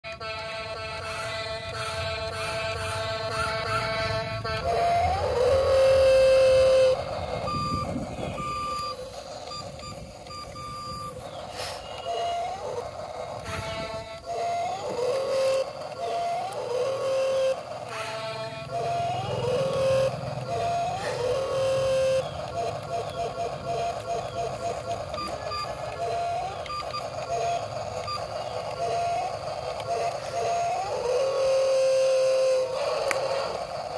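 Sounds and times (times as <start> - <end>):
electronic toy steady tone: 0.1 - 33.9
short high beeps: 6.2 - 12.4.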